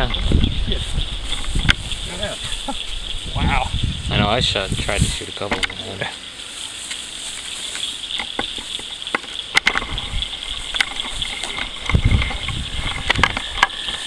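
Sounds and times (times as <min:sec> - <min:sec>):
microphone clicks and thumps: 0:00.0 - 0:05.8, 0:08.1 - 0:14.0
footsteps swishing through grass: 0:06.4 - 0:08.2.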